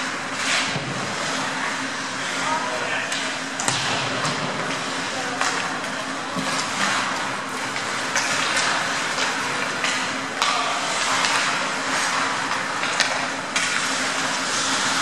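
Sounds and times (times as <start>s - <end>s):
steady low hum: 0.0s - 15.0s
hockey sticks and puck clacking: 3.1s - 15.0s.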